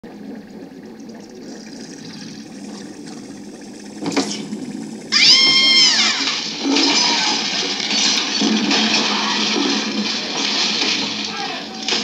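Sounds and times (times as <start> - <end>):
low background hum: 0.0 - 12.0
high drawn-out squeal: 5.1 - 7.5.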